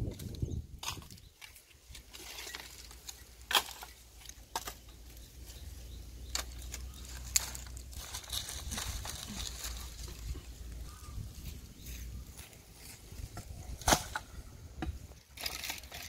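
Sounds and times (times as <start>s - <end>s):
rustling undergrowth: 0.0s - 16.0s
dry sticks knocking and clattering: 0.1s - 5.2s, 6.2s - 10.6s.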